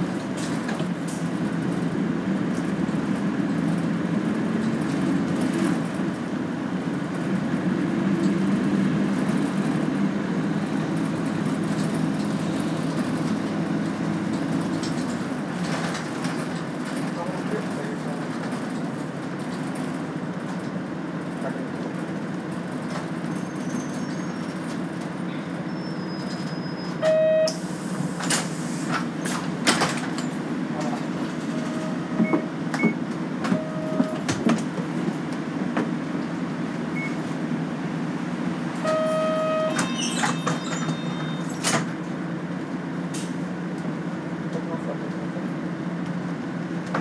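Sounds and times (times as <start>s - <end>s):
bus diesel engine droning: 0.0s - 47.0s
electronic beeps: 38.9s - 41.6s.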